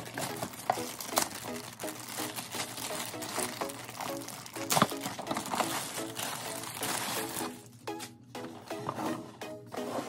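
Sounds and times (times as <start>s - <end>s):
plastic shrink wrap crinkling: 0.0s - 7.8s
background music repeating notes: 0.0s - 10.0s.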